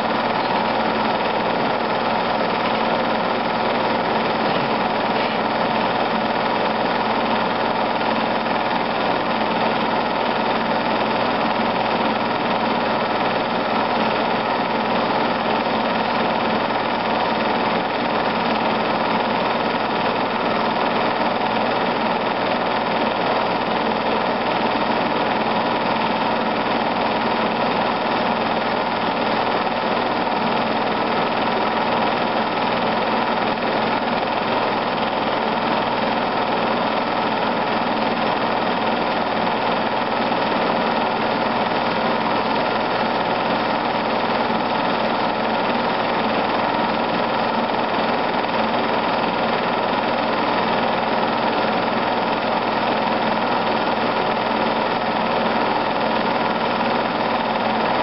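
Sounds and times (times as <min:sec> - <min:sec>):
film projector running: 0:00.0 - 0:58.0.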